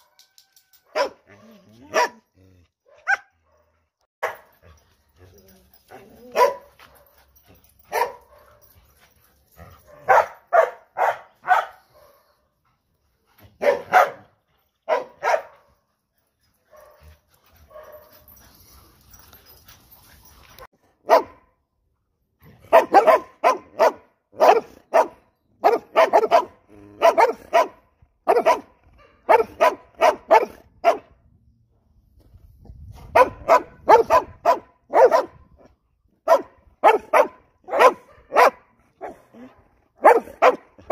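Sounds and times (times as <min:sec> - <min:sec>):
dogs barking: 0:01.0 - 0:02.3, 0:02.9 - 0:04.6, 0:06.3 - 0:07.2, 0:07.9 - 0:08.7, 0:09.9 - 0:12.3, 0:13.6 - 0:14.3, 0:14.9 - 0:15.7, 0:21.0 - 0:21.4, 0:22.7 - 0:31.1, 0:33.1 - 0:35.4, 0:36.2 - 0:40.9.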